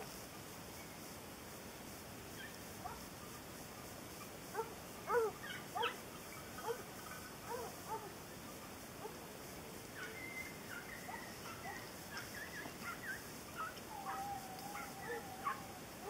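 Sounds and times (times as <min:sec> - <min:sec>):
hounds baying and yelping: 0:04.6 - 0:06.0, 0:07.4 - 0:08.1, 0:10.0 - 0:16.0.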